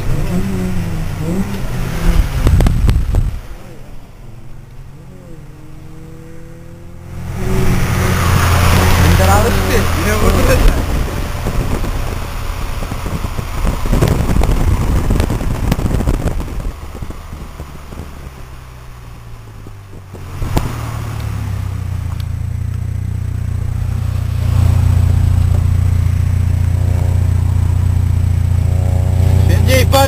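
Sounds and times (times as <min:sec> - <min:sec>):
car engine drone: 0:00.0 - 0:30.0
road noise: 0:00.0 - 0:30.0
wind buffeting microphone: 0:02.0 - 0:03.6, 0:07.4 - 0:22.3.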